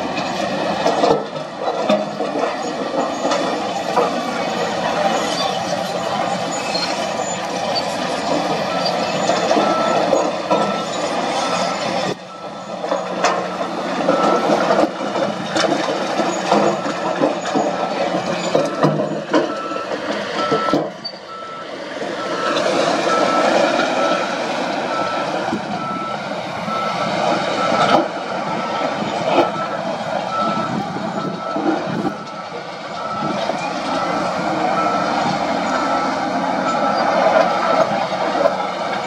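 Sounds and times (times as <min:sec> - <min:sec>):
diesel engines: 0:00.0 - 0:39.0
reversing alarm beeping: 0:04.4 - 0:14.7, 0:16.2 - 0:38.0
rock and dirt clattering: 0:08.1 - 0:21.0.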